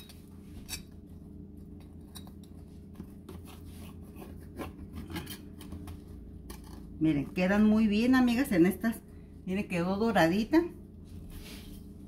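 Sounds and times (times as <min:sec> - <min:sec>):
knife cutting pizza crust: 0:02.9 - 0:06.9.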